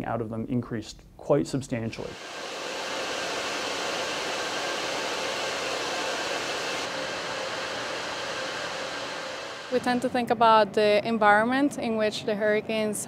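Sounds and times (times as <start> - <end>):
cooling fans rushing: 2.0 - 10.8
faint hum: 2.0 - 11.2.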